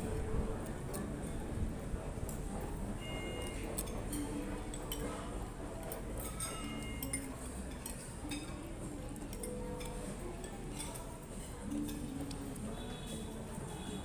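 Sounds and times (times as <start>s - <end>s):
cutlery clinking on plates: 3.0s - 13.8s.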